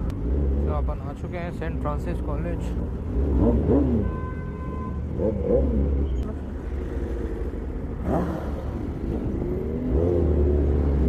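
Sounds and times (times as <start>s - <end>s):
motorcycle engine revving: 2.6s - 4.2s, 5.1s - 11.0s.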